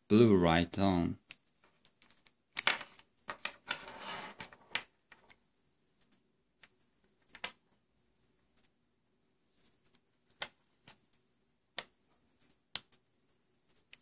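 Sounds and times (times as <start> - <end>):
rubbing: 3.7 - 4.5.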